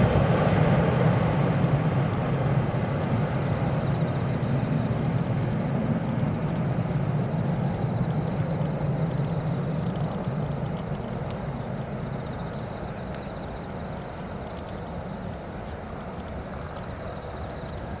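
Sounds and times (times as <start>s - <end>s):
jet engines rumbling: 0.0s - 14.4s.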